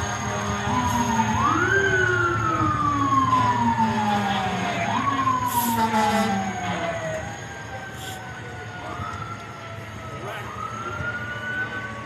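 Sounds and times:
fire engine siren wailing: 0.0s - 12.0s.

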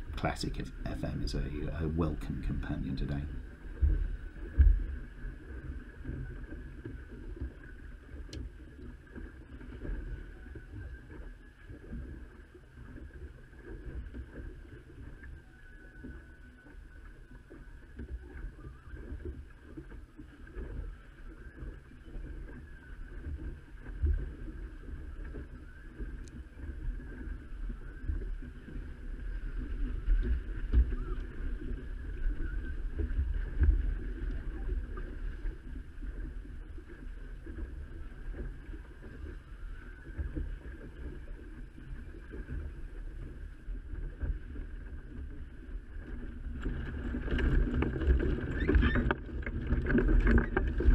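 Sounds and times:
wind blowing on microphone: 0.0s - 6.7s
water splashing along boat hull: 0.0s - 50.9s.

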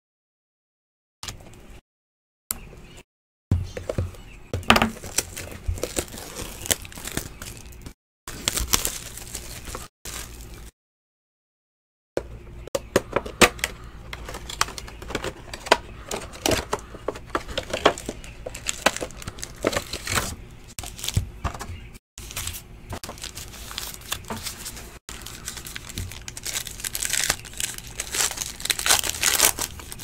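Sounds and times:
wrapper crinkling and tearing: 4.8s - 10.7s, 14.1s - 21.2s, 22.2s - 30.0s.

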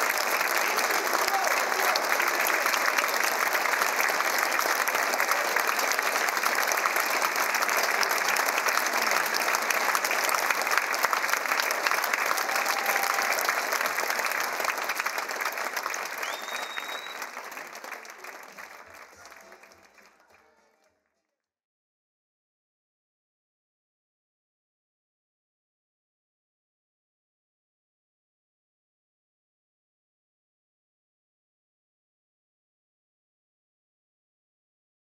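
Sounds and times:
audience applauding: 0.0s - 20.9s.

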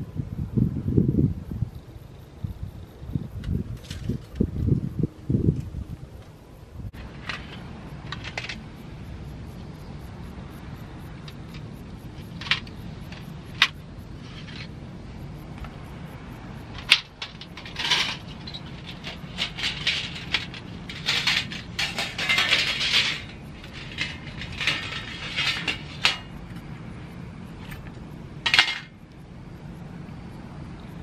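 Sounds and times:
metal plates clinking and rattling: 7.0s - 8.8s, 11.2s - 14.8s, 16.7s - 26.8s, 27.5s - 29.1s.

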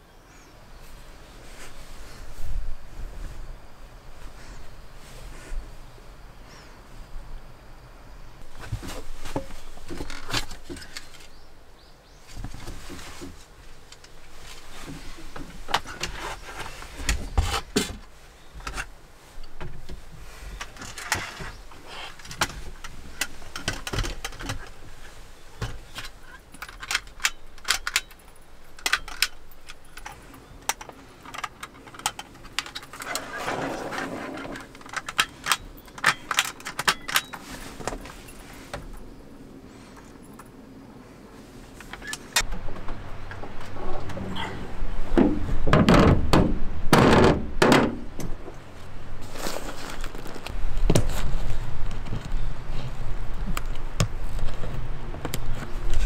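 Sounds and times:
light clicks and clatter: 20.6s - 39.0s
heavy knocks and scraping: 42.0s - 48.6s.

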